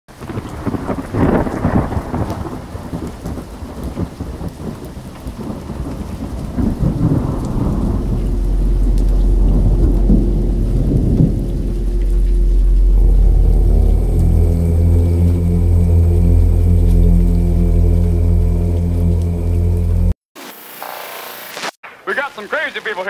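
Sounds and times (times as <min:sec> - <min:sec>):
rolling thunder: 0:00.1 - 0:19.5
rain: 0:00.1 - 0:23.0
low drone with higher tone: 0:06.6 - 0:20.2.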